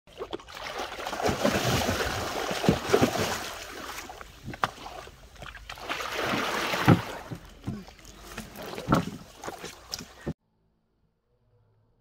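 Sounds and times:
water splashing and churning: 0.1 - 10.4.

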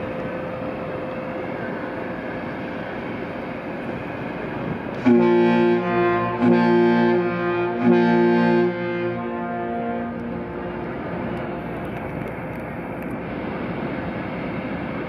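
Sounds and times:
faint hum: 0.0 - 15.0
steady rushing noise: 0.0 - 15.0
ship's horn blasts: 4.6 - 13.0.

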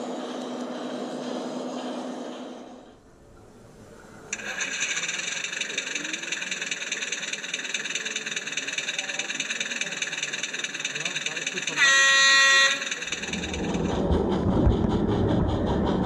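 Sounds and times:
model diesel engine running sound: 4.3 - 16.0.

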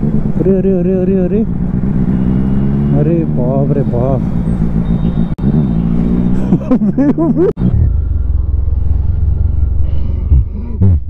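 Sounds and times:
motorcycle engine running: 0.0 - 9.8.

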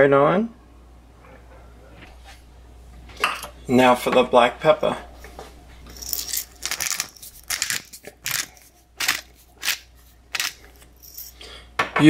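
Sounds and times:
pepper mill grinding: 5.9 - 11.4.

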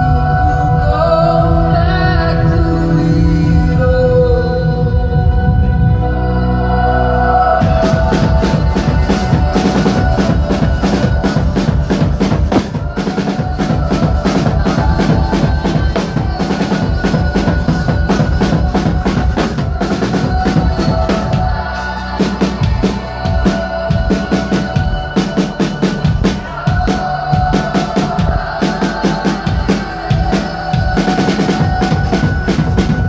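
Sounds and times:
drum kit rapid beat: 7.6 - 33.0.

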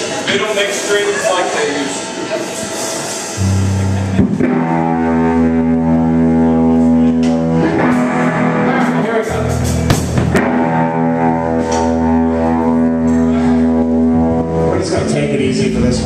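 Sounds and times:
electric guitar chord ringing: 3.4 - 16.0.

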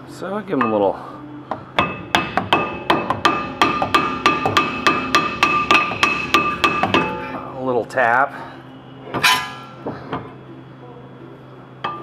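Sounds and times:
hammer striking metal disc: 1.8 - 7.2, 9.2 - 9.8
metal disc ringing: 9.2 - 9.8.

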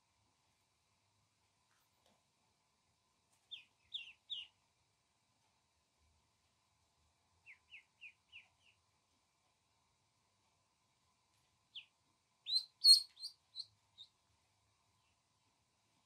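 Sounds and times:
duckling peeping: 3.5 - 4.6, 7.4 - 8.8, 11.7 - 14.2.

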